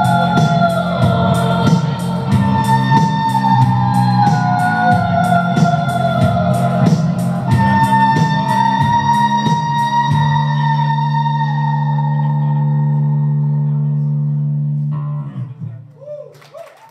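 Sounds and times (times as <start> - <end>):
synth-pop band playing: 0.0 - 10.7.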